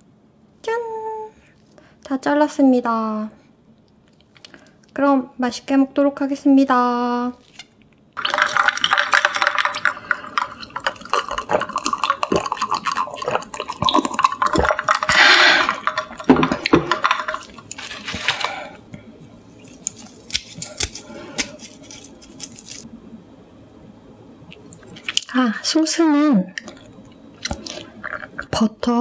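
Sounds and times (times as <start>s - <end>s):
person sipping and swallowing: 8.2s - 18.4s, 26.6s - 28.5s.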